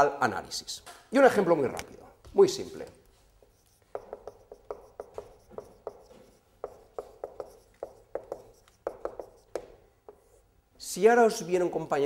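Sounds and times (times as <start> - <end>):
marker pen writing on whiteboard: 1.8 - 10.5.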